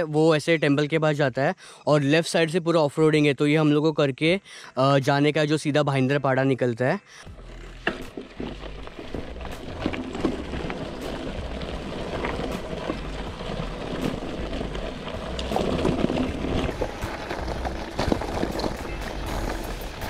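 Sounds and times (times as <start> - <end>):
bike tyres on dirt and stones: 7.2 - 20.0
bike rattling and knocking: 7.3 - 20.0.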